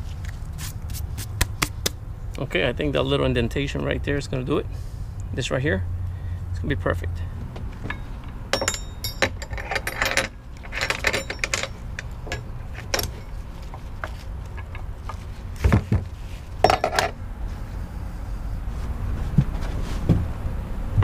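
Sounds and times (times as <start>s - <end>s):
metal buckle clicking and rattling: 7.7s - 15.2s.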